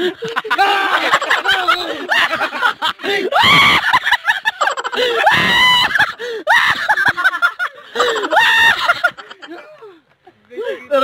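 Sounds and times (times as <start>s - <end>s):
person screaming in fright: 3.3s - 4.0s, 5.2s - 6.9s.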